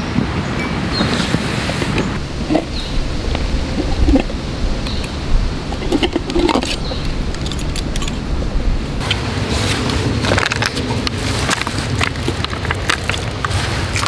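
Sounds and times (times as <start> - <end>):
low outdoor rumble: 1.3 - 14.0
metal mug clicks and rustles: 1.8 - 8.2.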